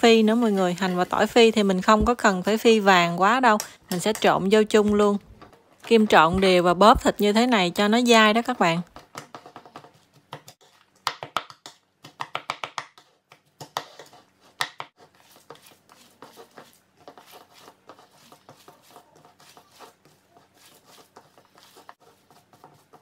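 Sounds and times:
hands squishing minced meat: 13.0 - 23.0.

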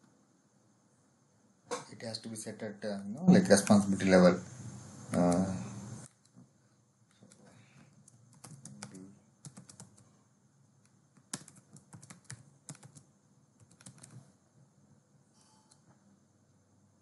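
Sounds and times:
faint keyboard typing: 3.4 - 4.2, 5.1 - 14.6, 15.5 - 16.0.

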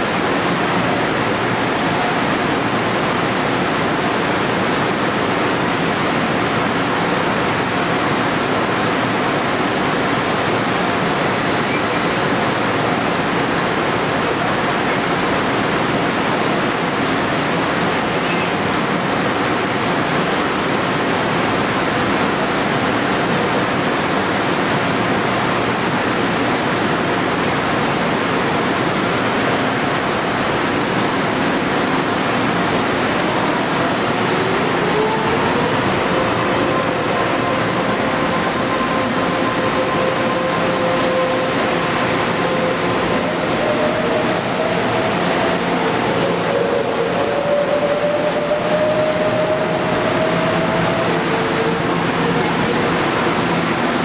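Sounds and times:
electric train rushing noise: 0.0 - 54.0
short high beep: 11.2 - 12.5.

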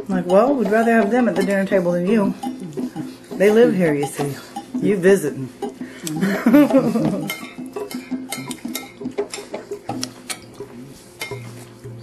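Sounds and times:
cutlery clinking on plates: 5.6 - 11.7.

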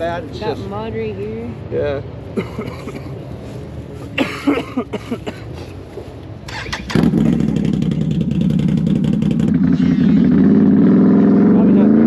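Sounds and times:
motorcycle v-twin engine running: 7.0 - 9.6.

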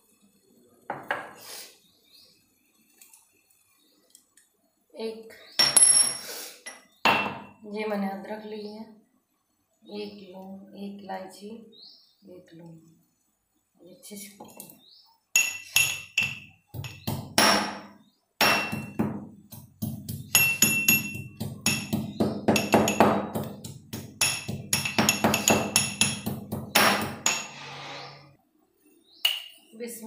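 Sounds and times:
mortar and pestle pounding: 15.8 - 27.4.

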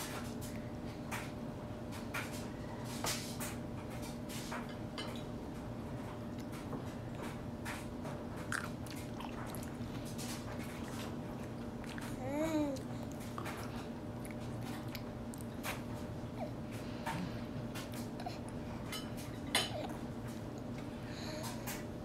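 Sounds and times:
baby chewing wet smacks: 6.3 - 18.6.

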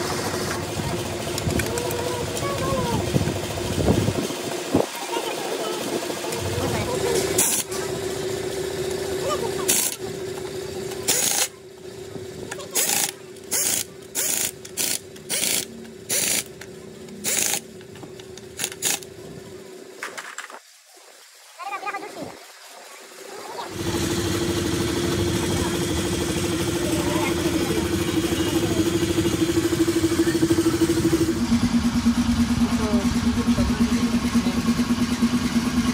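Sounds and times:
engine humming: 0.0 - 20.0, 22.9 - 35.9
noisy tool strokes: 0.0 - 35.9
machine humming: 22.4 - 35.9.

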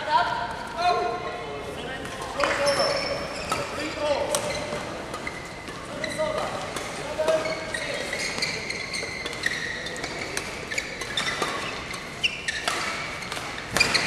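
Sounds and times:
shoes squeaking on court floor: 1.9 - 14.0
rackets striking shuttlecock: 3.4 - 7.7, 9.2 - 14.0.

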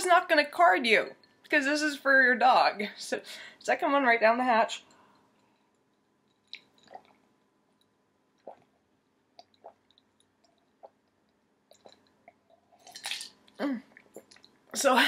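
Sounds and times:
person gulping a drink: 6.3 - 14.8.

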